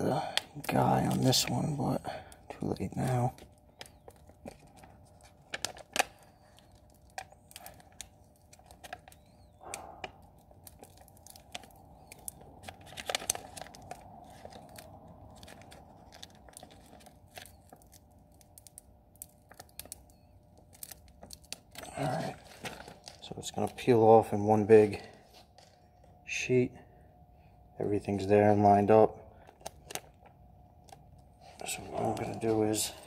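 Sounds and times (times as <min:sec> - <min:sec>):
paper crinkling: 0:00.6 - 0:26.1, 0:29.5 - 0:33.0
transfer sheet peeling crackle: 0:02.5 - 0:23.9.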